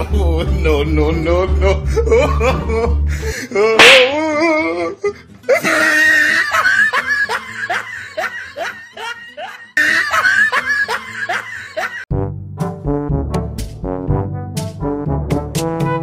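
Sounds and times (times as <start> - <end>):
person laughing hard: 1.6 - 12.1
brass comedy music: 12.0 - 16.0.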